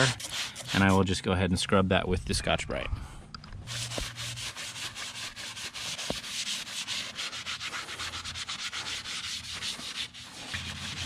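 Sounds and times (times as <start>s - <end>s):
scouring pad scrubbing: 0.0s - 1.1s, 3.7s - 11.0s.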